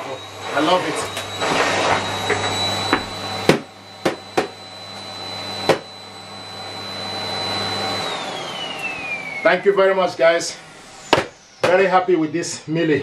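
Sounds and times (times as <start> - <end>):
vacuum cleaner running: 0.0 - 13.0
sharp knocks: 11.1 - 11.8.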